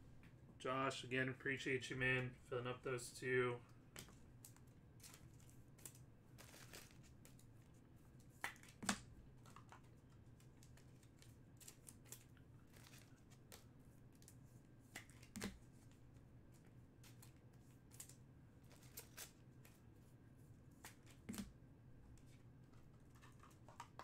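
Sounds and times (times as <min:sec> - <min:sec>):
cards and packaging rustling: 0:04.0 - 0:19.8, 0:22.2 - 0:24.0.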